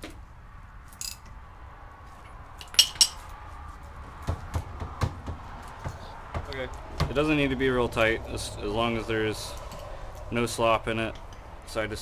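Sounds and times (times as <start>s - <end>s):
metal tool clinking: 2.2s - 3.3s
dull knocks of rotor: 4.0s - 7.2s.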